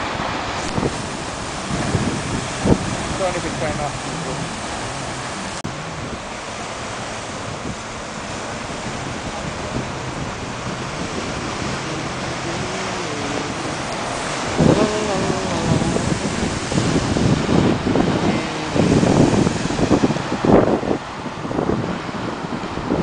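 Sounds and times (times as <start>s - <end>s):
waves breaking on rocks: 0.0s - 23.0s
wind buffeting microphone: 0.0s - 23.0s.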